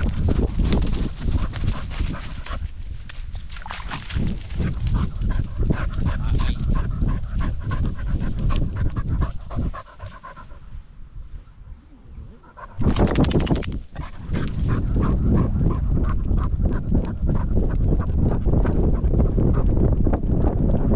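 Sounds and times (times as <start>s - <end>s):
dog panting fast: 0.2s - 2.7s, 4.0s - 10.8s, 12.1s - 20.8s.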